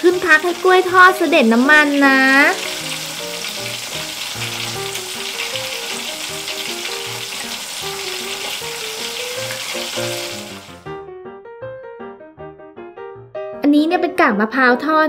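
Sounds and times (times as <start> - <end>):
oil sizzling in a pan: 0.0 - 10.9
soft background music: 0.0 - 15.0.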